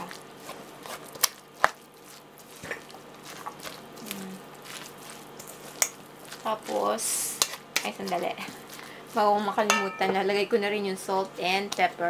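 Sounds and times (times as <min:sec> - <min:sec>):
wet squishing of mixing food: 0:00.0 - 0:12.0.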